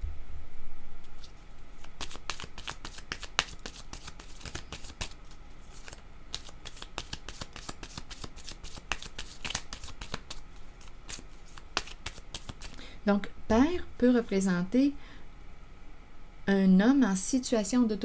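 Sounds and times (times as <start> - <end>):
cards being shuffled: 1.0 - 12.8.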